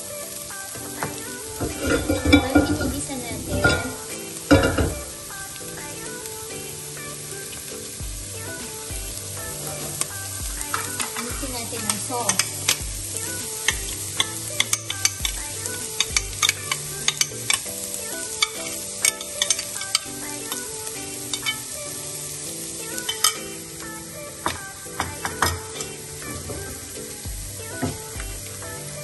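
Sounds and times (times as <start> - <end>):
sauce sizzling in a frying pan: 0.0 - 29.0
spatula scraping on metal pan: 1.6 - 4.0.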